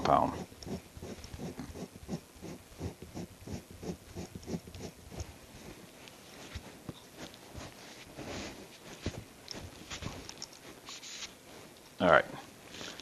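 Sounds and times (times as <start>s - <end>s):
small rustles and taps: 4.2s - 12.0s.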